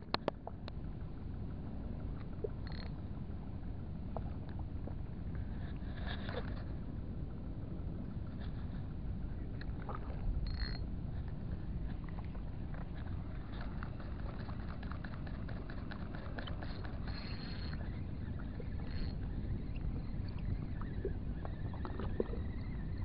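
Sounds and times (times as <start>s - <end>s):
fishing reel ticking: 2.6s - 3.0s, 10.4s - 10.8s, 13.3s - 22.4s.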